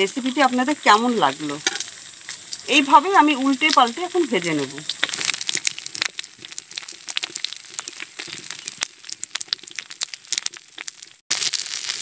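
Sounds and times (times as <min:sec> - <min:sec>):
fish sizzling and crackling on griddle: 0:00.0 - 0:12.0.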